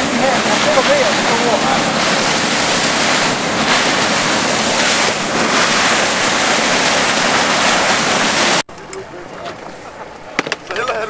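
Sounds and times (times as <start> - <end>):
wind blasting the microphone: 0.0 - 8.6
wind rushing: 0.0 - 8.6
breaking water: 0.0 - 8.7.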